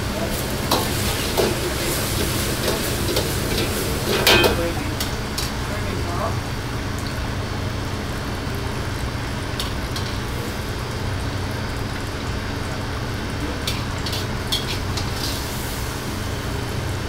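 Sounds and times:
vegetables sizzling in a wok: 0.0s - 17.0s
metal ladle scraping a wok: 13.7s - 15.6s.

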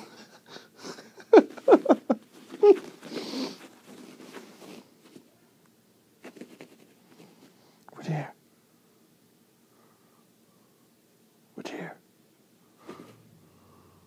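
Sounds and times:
faint scratches: 2.3s - 5.3s, 6.2s - 7.6s.

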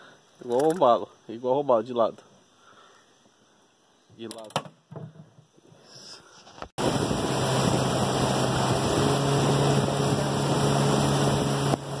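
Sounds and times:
wind and water noise: 6.5s - 12.0s
outboard motor running: 6.8s - 12.0s.

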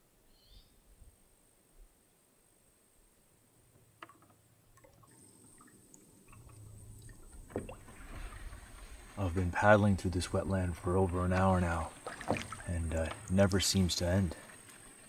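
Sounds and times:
paddle pulling through water: 4.0s - 15.0s
water drips and trickles: 4.1s - 15.0s.

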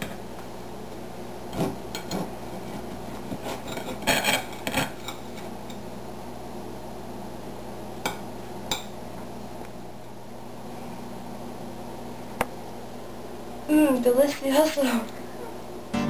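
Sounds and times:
knife scraping on plate: 1.5s - 5.2s.

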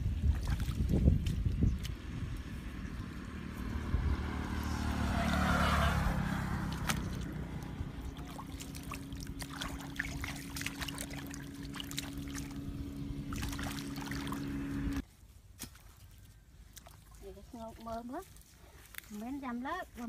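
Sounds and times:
wind rumble on microphone: 0.0s - 15.0s
hands splashing in muddy water: 0.2s - 2.1s, 6.2s - 15.0s
steady low hum: 6.8s - 15.0s.

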